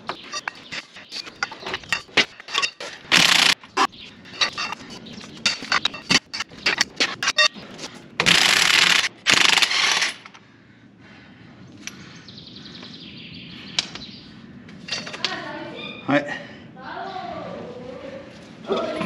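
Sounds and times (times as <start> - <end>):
impact wrench hammering: 0.0 - 4.8.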